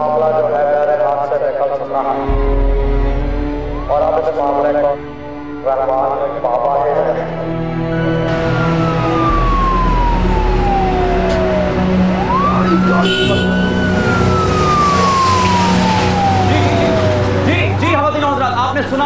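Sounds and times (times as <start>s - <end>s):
emergency vehicle siren wailing: 6.4s - 19.0s.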